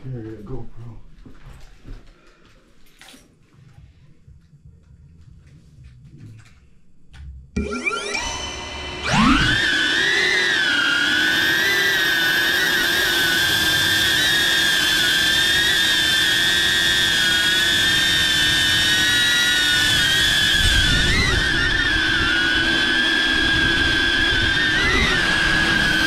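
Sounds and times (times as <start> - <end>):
drone propellers whining: 7.6 - 26.0.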